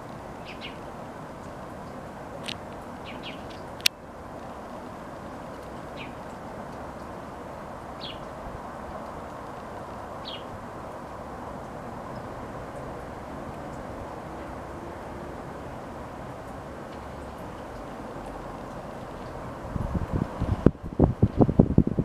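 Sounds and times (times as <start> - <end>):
outdoor background rumble: 0.0 - 22.0
small birds chirping: 0.4 - 3.9, 5.3 - 6.4, 7.9 - 8.3, 10.2 - 10.6.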